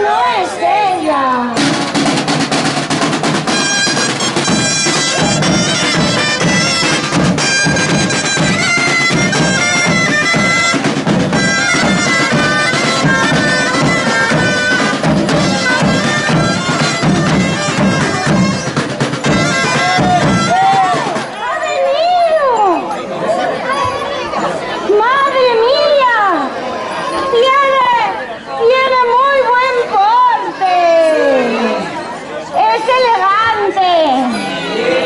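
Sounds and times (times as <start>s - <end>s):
reed pipes melody: 1.6s - 21.4s
side drums beat: 1.6s - 21.4s.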